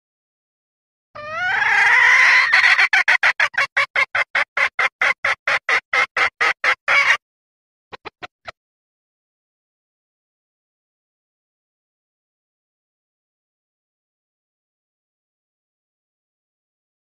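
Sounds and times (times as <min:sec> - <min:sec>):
hen clucking: 0:01.2 - 0:07.2, 0:07.9 - 0:08.5
hen squawk: 0:01.2 - 0:07.2.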